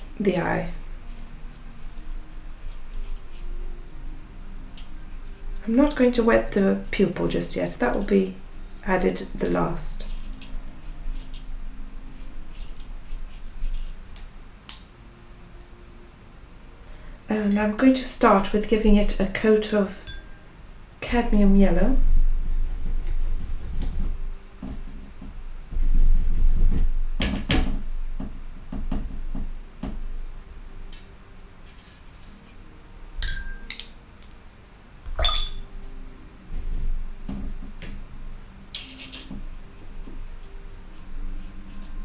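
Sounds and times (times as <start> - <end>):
brush clinking on ceramic palette: 19.6 - 20.4, 33.2 - 33.8, 35.2 - 35.7.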